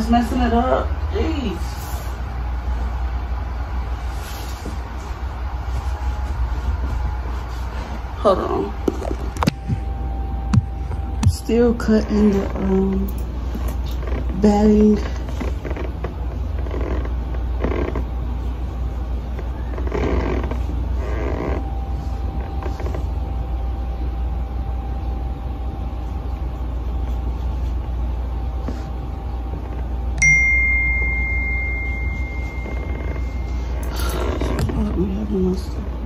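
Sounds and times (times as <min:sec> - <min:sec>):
low steady hum: 0:00.0 - 0:36.0
bright bell-like ding: 0:30.2 - 0:33.8.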